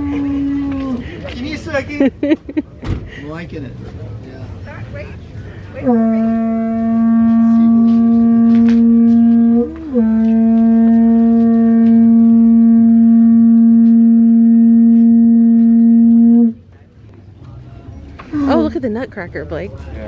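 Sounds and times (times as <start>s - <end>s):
conch shell horn note: 0.0s - 1.0s, 5.8s - 16.6s.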